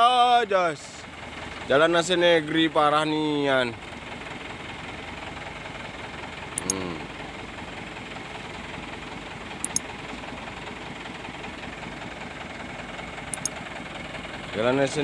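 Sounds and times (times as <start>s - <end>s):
diesel truck engine idling: 0.0s - 15.0s
short sharp clicks: 9.6s - 9.9s, 13.4s - 13.6s.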